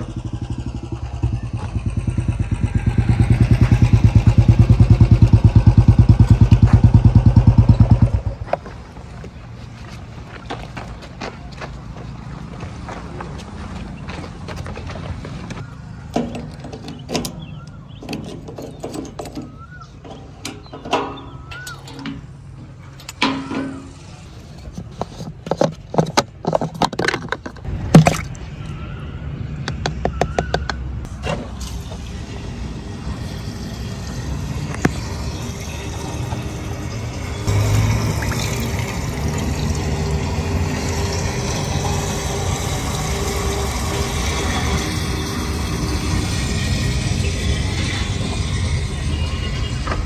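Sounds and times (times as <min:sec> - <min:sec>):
metal clicks and knocks: 0:16.1 - 0:22.4, 0:24.9 - 0:28.2
liquid pouring into tank: 0:34.7 - 0:48.5.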